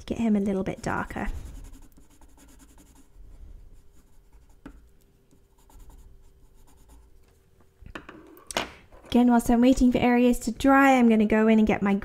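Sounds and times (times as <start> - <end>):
faint pencil scratching on paper: 0.5 - 7.2.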